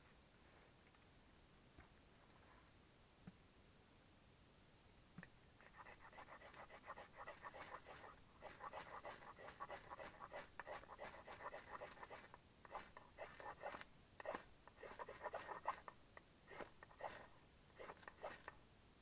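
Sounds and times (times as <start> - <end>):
knife scraping ferro rod: 5.7 - 15.9, 16.5 - 18.5.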